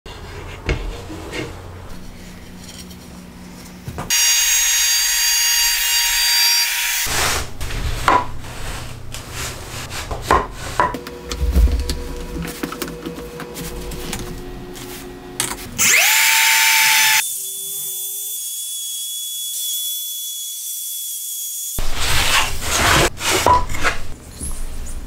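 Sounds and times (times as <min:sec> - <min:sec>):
wood router cutting plywood: 0:04.1 - 0:07.2, 0:15.8 - 0:23.0.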